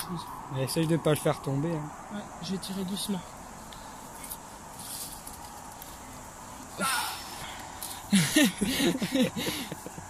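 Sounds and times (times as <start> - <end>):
man grunting and breathing hard: 6.8 - 7.5.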